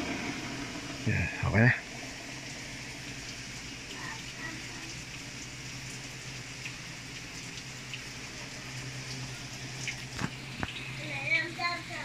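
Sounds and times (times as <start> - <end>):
low machine hum: 0.0 - 12.0
water running into washing machine: 0.0 - 12.0.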